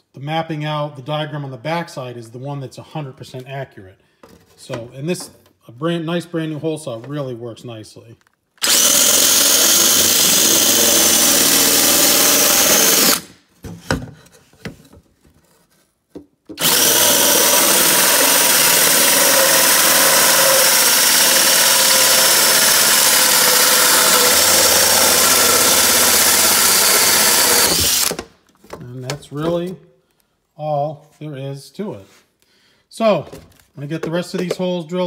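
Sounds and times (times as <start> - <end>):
drill hole saw cutting whir: 8.6 - 13.3, 16.6 - 28.2.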